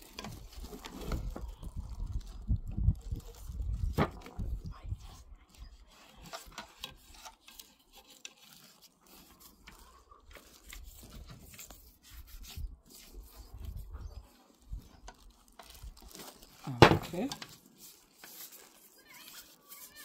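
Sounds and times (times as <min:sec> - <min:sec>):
toothbrush scratching metal: 0:05.6 - 0:14.4, 0:17.3 - 0:20.0.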